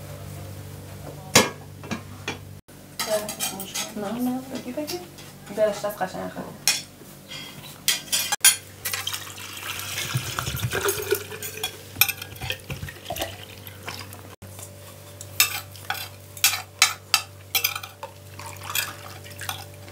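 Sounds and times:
cutlery clinking on plates: 6.7s - 9.1s, 10.5s - 13.3s, 15.3s - 19.7s
drink pouring into paper cup: 9.0s - 11.5s.

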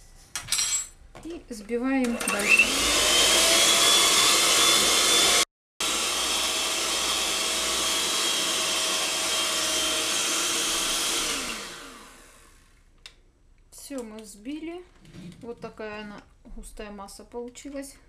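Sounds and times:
electric hand mixer running: 2.2s - 12.8s.

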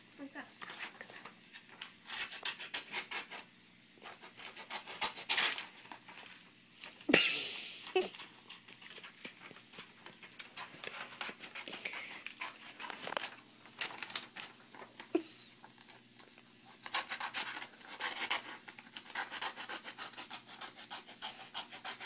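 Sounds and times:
scissors snipping paper: 1.8s - 5.7s, 10.3s - 14.4s, 16.8s - 22.0s
paper rustling: 4.2s - 7.1s, 7.9s - 19.7s.

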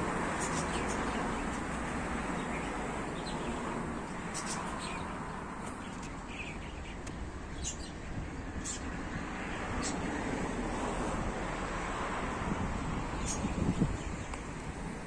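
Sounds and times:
small birds chirping: 0.2s - 10.4s, 13.1s - 14.5s.

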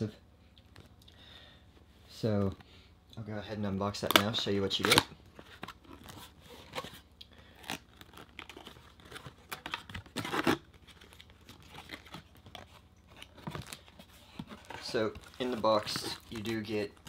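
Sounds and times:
cardboard rustling and scraping: 5.3s - 7.0s, 8.0s - 17.0s.

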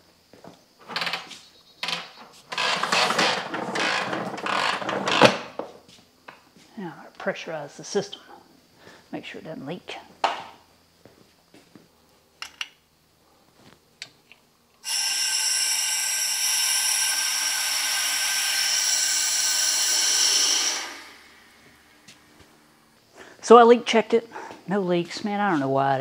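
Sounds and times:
compressed air hissing: 14.8s - 23.4s.

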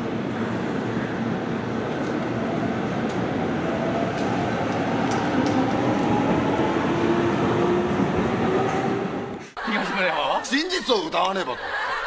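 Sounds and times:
electric train wheels rumbling: 0.0s - 9.4s.

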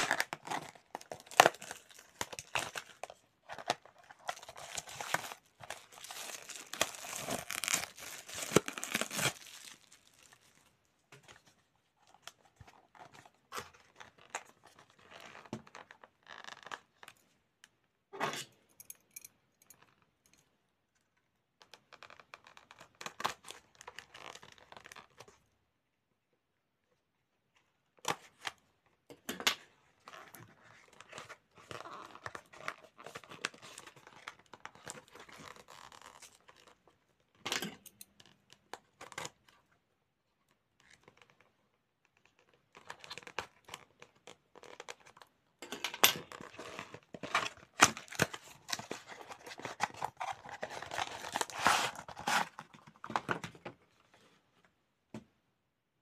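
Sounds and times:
cardboard tearing and crinkling: 0.0s - 10.6s, 46.2s - 53.2s.

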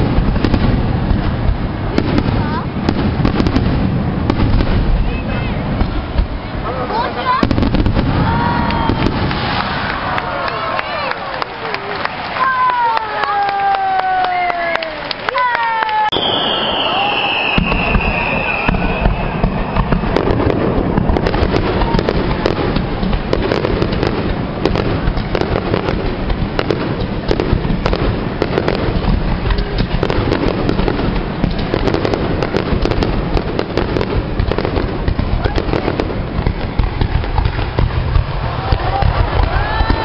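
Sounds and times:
fireworks bangs and crackles: 0.0s - 40.0s.

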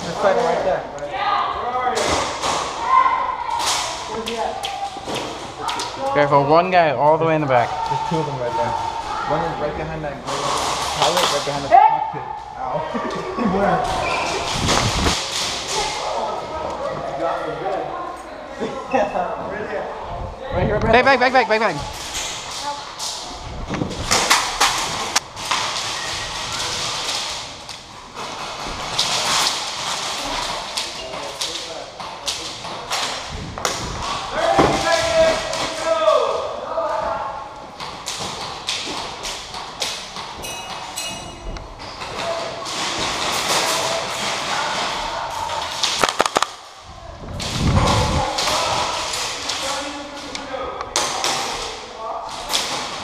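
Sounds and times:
steady rustling hiss: 0.0s - 53.0s
sharp cracks: 42.6s - 46.8s
sharp cracks and knocks: 45.6s - 46.7s.

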